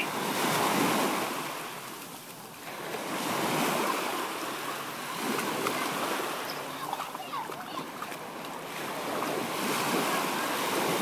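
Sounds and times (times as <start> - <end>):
small waves breaking in shallow surf: 0.0 - 11.0.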